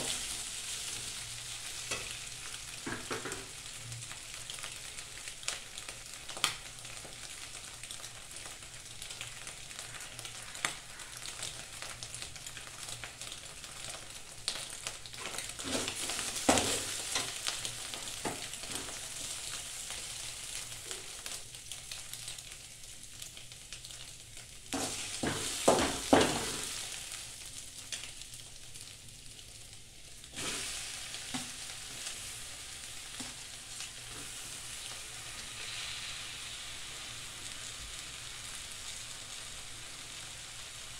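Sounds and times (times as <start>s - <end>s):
egg sizzling in a pan: 0.0s - 40.9s
spatula scraping and knocking pan: 15.2s - 17.4s, 24.8s - 26.7s.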